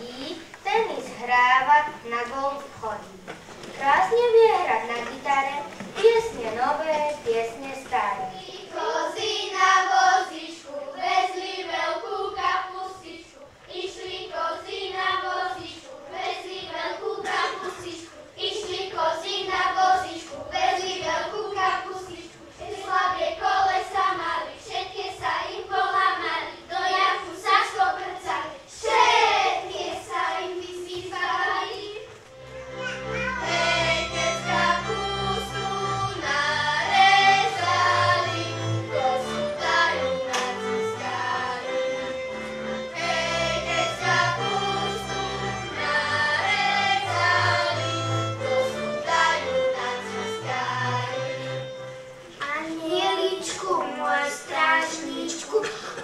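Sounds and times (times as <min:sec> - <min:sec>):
children's choir singing: 0:00.0 - 0:56.0
fiddle: 0:29.4 - 0:52.4.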